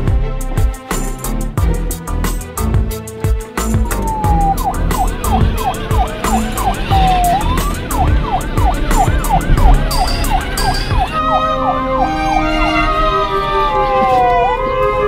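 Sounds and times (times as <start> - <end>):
toy police siren: 3.9 - 15.0.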